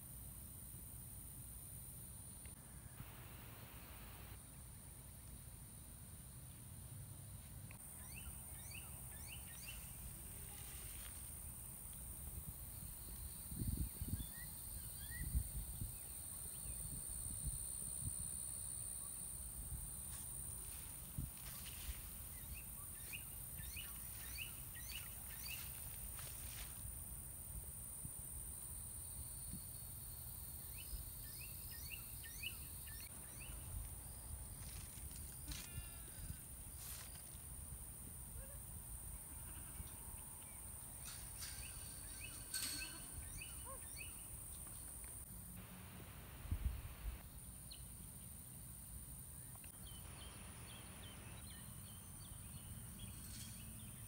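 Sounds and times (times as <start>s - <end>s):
high insect drone: 0.0s - 54.0s
bird chirping: 7.9s - 10.0s, 39.8s - 45.1s, 49.4s - 54.0s.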